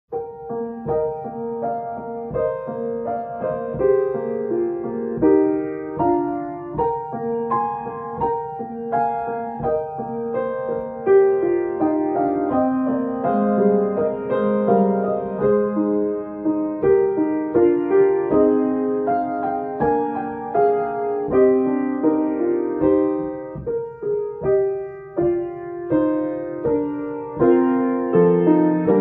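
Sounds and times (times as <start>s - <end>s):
grand piano melody: 0.1s - 29.0s.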